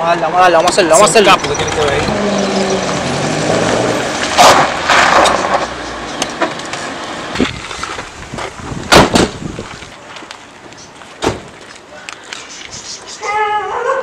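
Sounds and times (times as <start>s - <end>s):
vehicle approaching and pulling up: 0.0s - 13.2s
sharp bangs: 8.9s - 9.4s.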